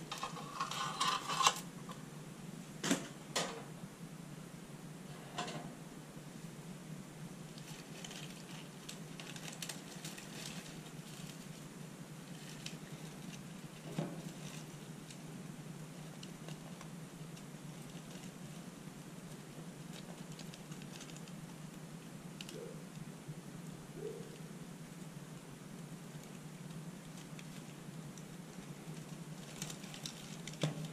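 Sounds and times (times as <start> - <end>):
steady low hum: 0.0 - 30.9
dry straw rustling and crackling: 7.4 - 30.9.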